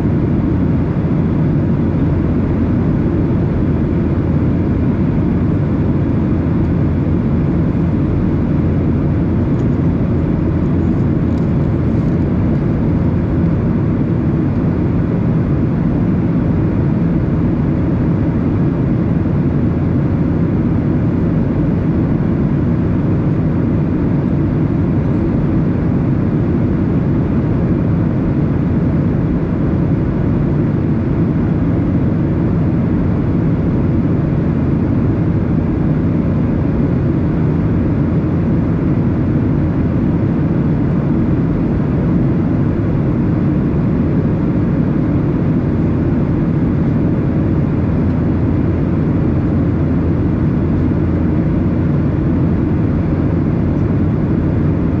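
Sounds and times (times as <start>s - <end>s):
airplane cabin engine roar: 0.0s - 55.0s.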